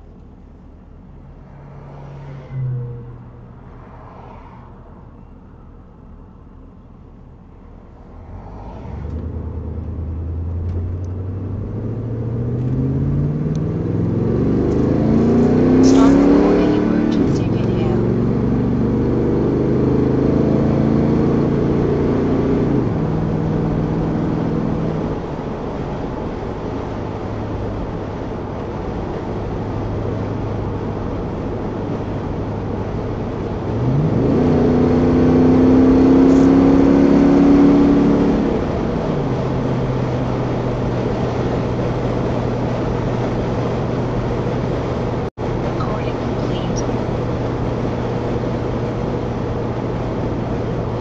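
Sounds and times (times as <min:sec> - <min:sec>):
road and wind noise: 0:00.0 - 0:51.0
car engine running: 0:05.2 - 0:51.0.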